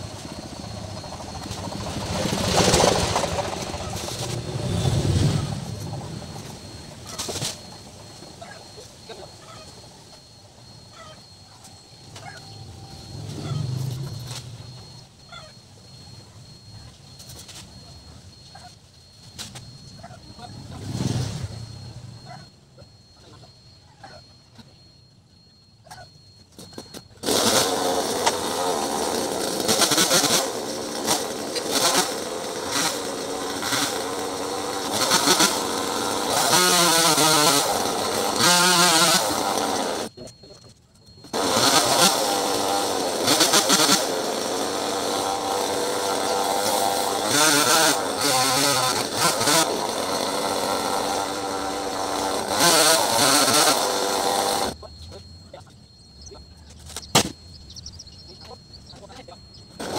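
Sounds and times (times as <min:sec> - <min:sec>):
chainsaw cutting wood: 0:00.0 - 0:15.0, 0:26.6 - 0:40.1, 0:41.2 - 0:54.8, 0:56.9 - 0:57.5, 0:59.6 - 0:59.9.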